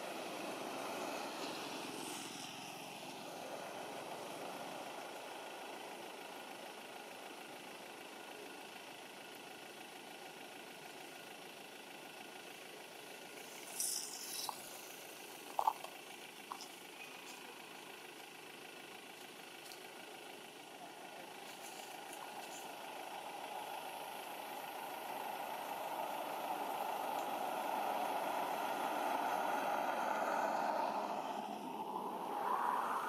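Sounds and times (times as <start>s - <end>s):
vehicle engine running: 0.0s - 33.0s
short hiss: 13.4s - 15.0s.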